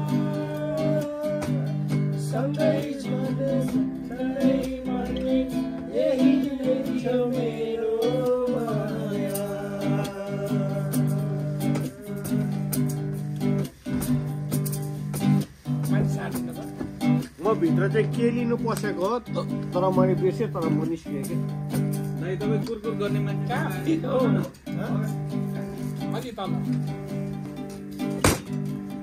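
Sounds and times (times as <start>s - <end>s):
person singing: 0.0s - 13.4s, 22.6s - 25.1s
strummed acoustic guitar: 0.0s - 29.0s.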